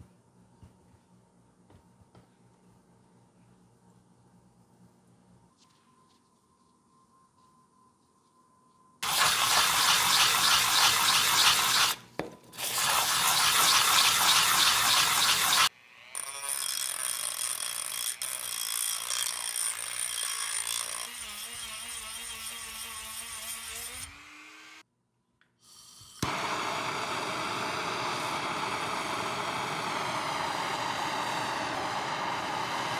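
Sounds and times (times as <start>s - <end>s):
rotary tool high whine: 9.0s - 12.0s, 12.6s - 24.8s, 25.8s - 32.9s
loud even rush of noise: 26.3s - 32.9s.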